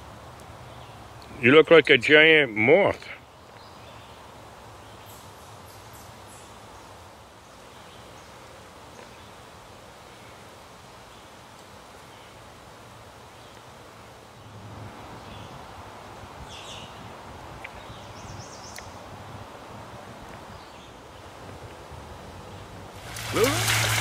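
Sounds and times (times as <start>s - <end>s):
air and leaves hissing: 22.9s - 24.0s.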